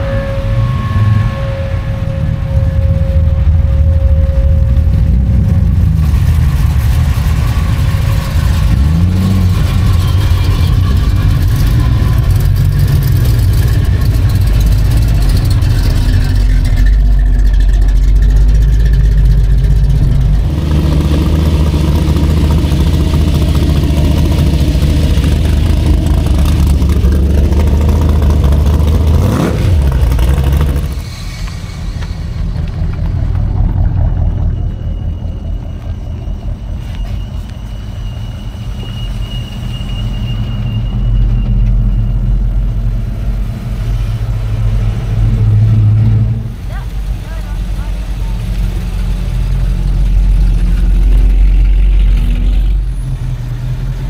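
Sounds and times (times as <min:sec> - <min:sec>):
car engine revving: 0:00.0 - 0:31.4
cars driving past: 0:00.0 - 0:54.0.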